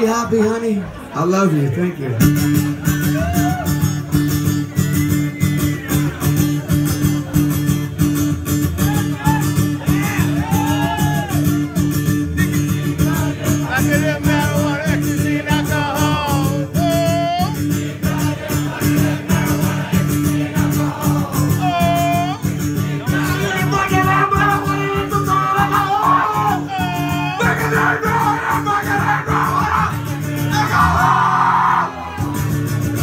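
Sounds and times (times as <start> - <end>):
live band playing: 2.2 - 33.0
voices: 12.3 - 32.3.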